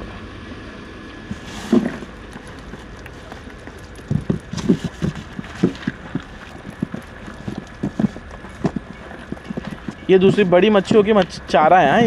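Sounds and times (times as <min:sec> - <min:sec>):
fish flapping in box: 0:01.3 - 0:10.0.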